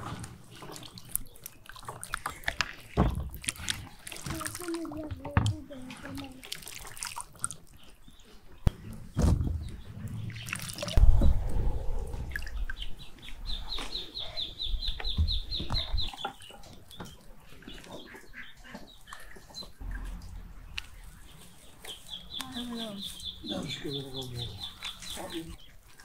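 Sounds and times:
birds calling: 7.3s - 26.0s.

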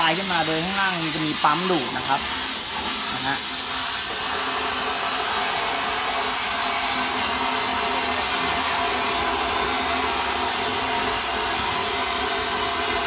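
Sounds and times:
hiss of compressed air spray: 0.0s - 6.6s.

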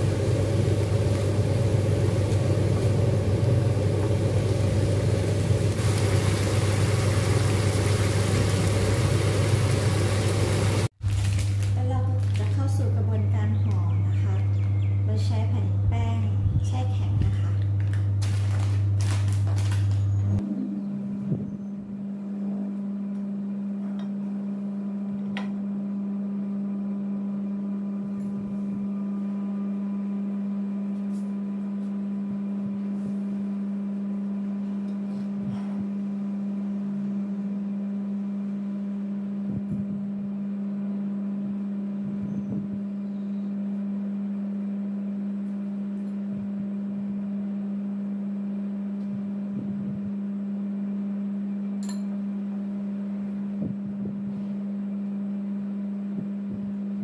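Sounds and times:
low mechanical hum: 0.0s - 57.0s
wrappers being handled: 11.0s - 12.8s, 17.8s - 20.2s.

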